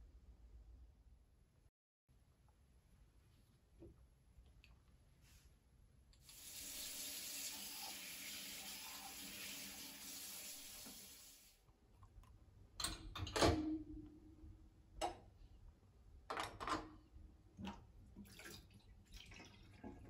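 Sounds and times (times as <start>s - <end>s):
tap water running: 6.2s - 11.6s, 17.6s - 20.0s.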